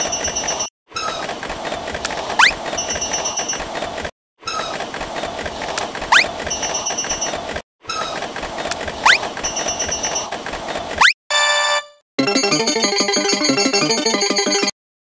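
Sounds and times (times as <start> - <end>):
cartoon train rumble and rail clatter: 0.0 - 11.0.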